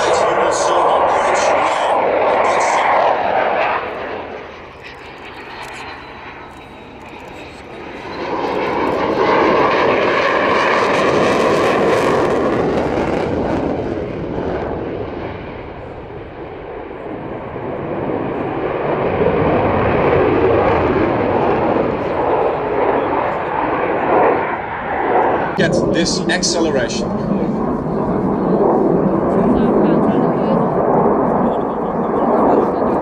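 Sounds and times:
fighter jet rushing noise: 0.0 - 5.3, 18.7 - 33.0.

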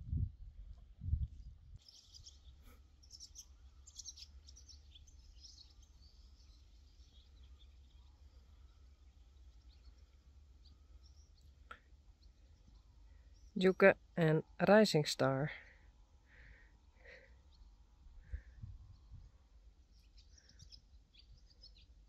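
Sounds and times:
low steady rumble: 0.0 - 1.8
small birds chirping: 0.6 - 22.0.

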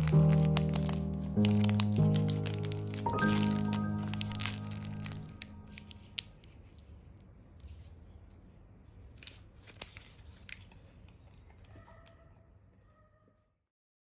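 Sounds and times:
snack wrapper crinkling: 0.0 - 7.3, 9.1 - 11.8.

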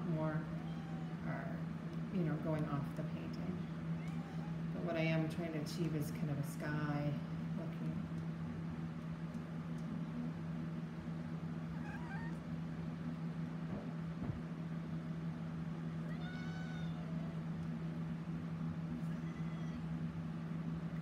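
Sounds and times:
steady low hum: 0.0 - 21.0
kitten meowing: 0.5 - 1.2, 4.0 - 4.7, 11.7 - 12.4, 16.0 - 17.4, 19.0 - 19.9.

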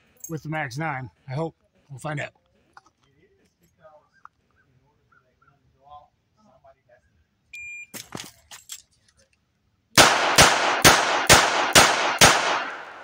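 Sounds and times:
revolver shots echoing: 10.0 - 13.0.

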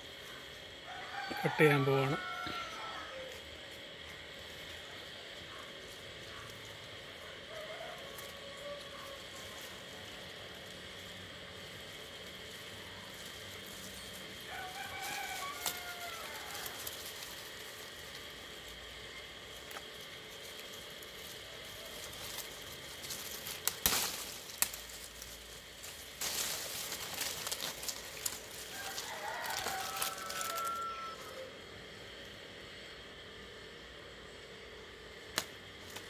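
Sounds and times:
leaves rustling: 0.0 - 32.8, 35.2 - 36.0
rooster crowing: 0.3 - 3.6, 6.3 - 10.6, 12.4 - 19.3, 25.6 - 32.0
pruning shears snipping: 14.4 - 18.8, 19.6 - 30.8, 35.3 - 36.0.

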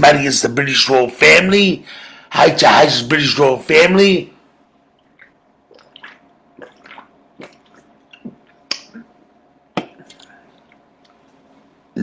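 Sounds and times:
person gulping a drink: 5.0 - 11.2.

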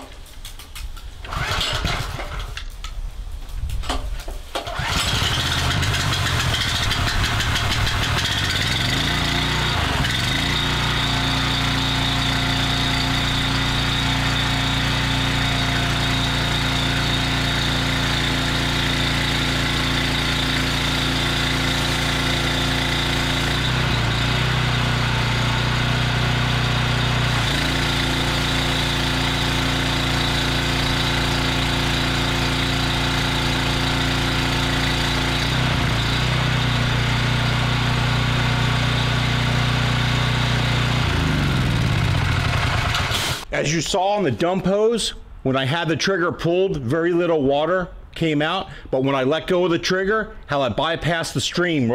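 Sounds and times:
pressure washer engine running: 1.3 - 2.4, 4.7 - 43.5.

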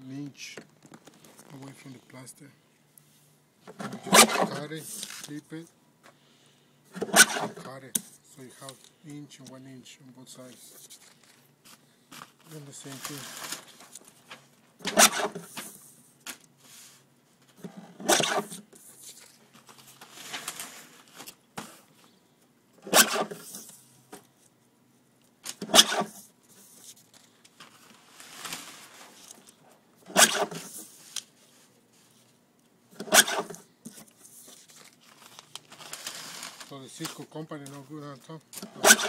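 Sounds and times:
paper trimmer cutting: 3.8 - 4.6, 7.0 - 7.6, 14.8 - 15.4, 30.1 - 30.7, 33.0 - 33.6, 38.7 - 39.0
paper rustling: 3.8 - 5.4, 10.4 - 22.1, 25.4 - 32.4, 33.0 - 38.4.

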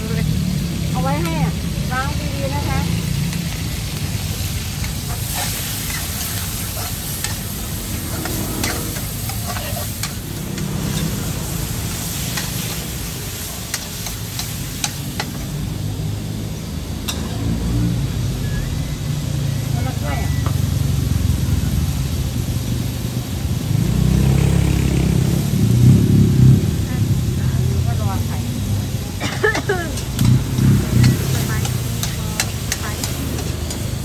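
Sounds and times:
food sizzling in a wok: 0.0 - 34.0
metal spatula scraping: 4.8 - 11.3
low rumble: 5.6 - 12.2.

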